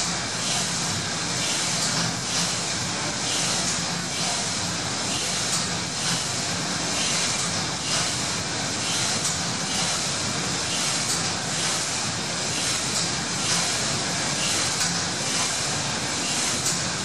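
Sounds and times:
steam engine clatter and hiss: 0.0 - 17.0.

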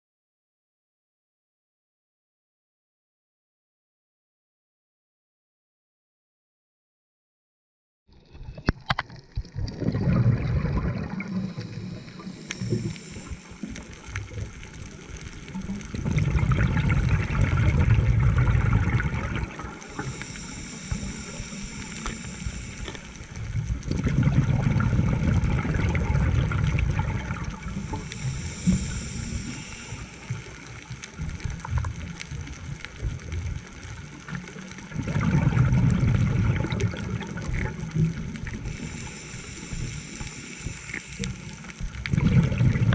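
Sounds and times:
exhaled air bubbling underwater: 8.2 - 42.9
regulator inhale hiss: 11.0 - 15.8, 19.5 - 23.9, 27.1 - 31.5, 38.4 - 42.1.

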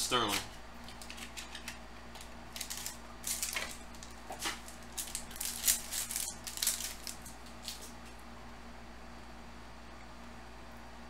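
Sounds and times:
foil wrapper crinkling: 0.1 - 8.0.

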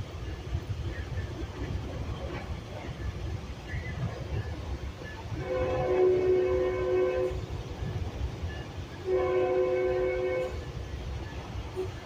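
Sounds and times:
moving train rumble: 0.0 - 12.0
train horn blasts: 5.3 - 7.5, 9.0 - 10.8.

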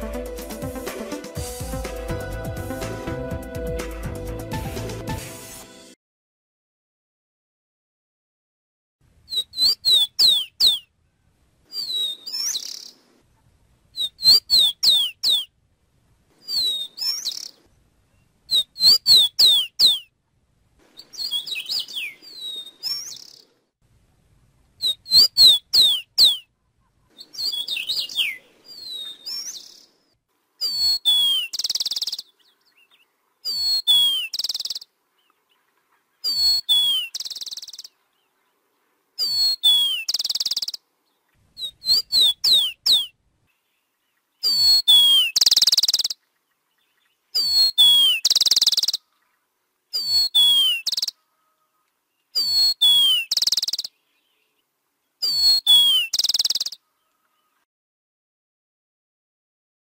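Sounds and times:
sparrow singing: 9.3 - 10.9, 11.7 - 13.0, 13.9 - 15.5, 16.4 - 20.1, 21.0 - 23.5, 24.8 - 29.9, 30.6 - 38.6, 39.2 - 49.3, 49.9 - 54.6, 55.2 - 57.6.

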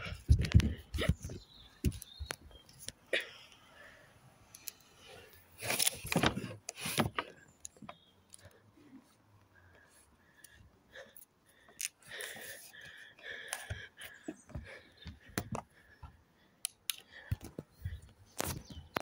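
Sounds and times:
hands handling wooden model: 5.6 - 8.5.

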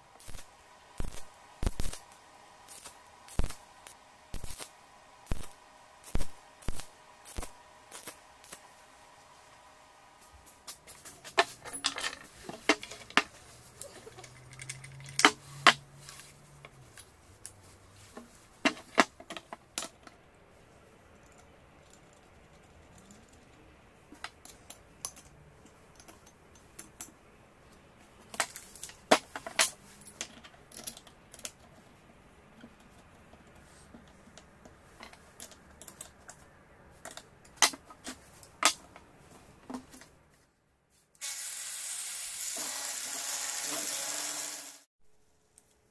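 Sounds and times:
metal tools clinking on workbench: 11.2 - 16.0.

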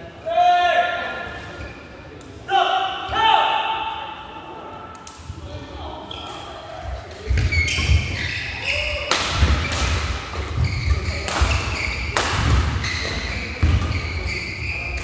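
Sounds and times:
shoes squeaking on court floor: 6.0 - 15.0
racket hitting shuttlecock: 9.0 - 15.0.

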